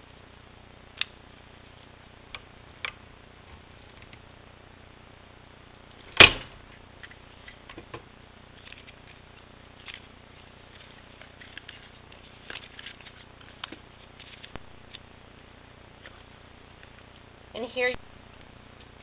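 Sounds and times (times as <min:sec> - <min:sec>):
cardstock rustling: 0:08.6 - 0:15.0.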